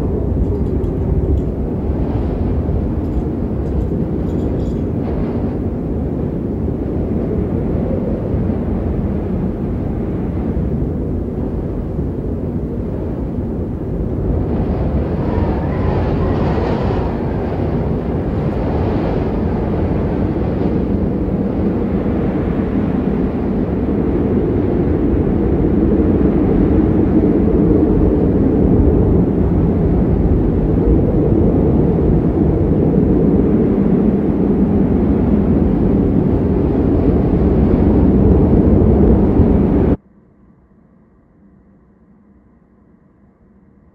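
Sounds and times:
strong wind blowing: 0.0 - 40.0.

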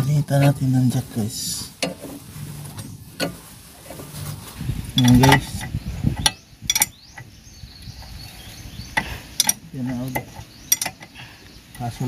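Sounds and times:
hand tools clicking and clanking: 1.8 - 7.3, 7.9 - 12.0.

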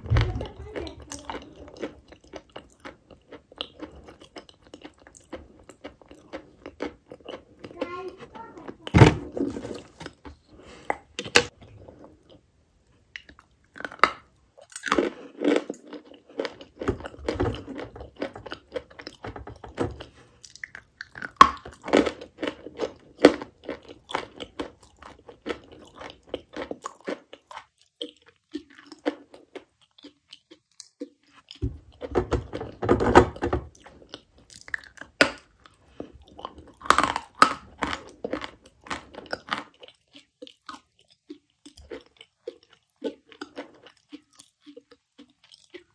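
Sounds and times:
chalk crunching when chewed: 0.7 - 7.8, 20.0 - 32.1, 33.7 - 45.9.

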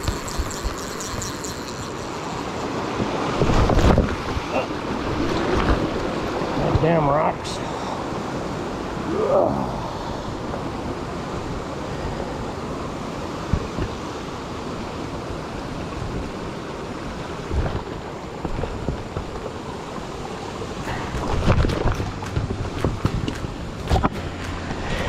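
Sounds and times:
footsteps on loose rocks: 20.9 - 24.2.

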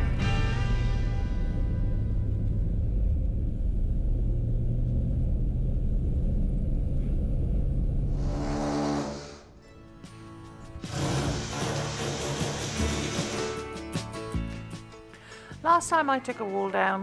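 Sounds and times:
car engine and road rumble: 0.0 - 8.5
brief rushing sound: 7.9 - 9.6.

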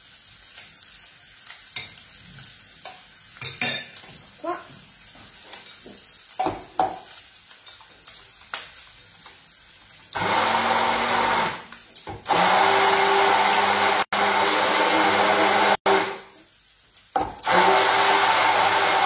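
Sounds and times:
tap water running into sink: 10.2 - 13.2.

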